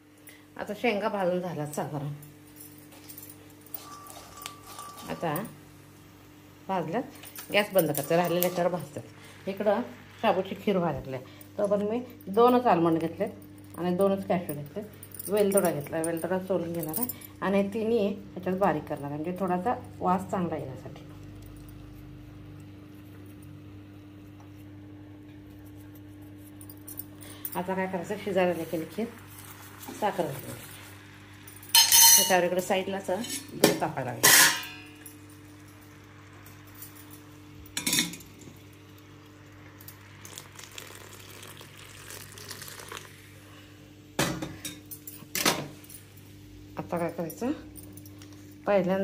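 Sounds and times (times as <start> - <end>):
steady low hum: 0.0 - 49.0
metal pot clanking: 3.8 - 5.3, 31.7 - 32.4, 33.2 - 35.0, 37.8 - 38.3
milk pouring splash: 40.0 - 43.2.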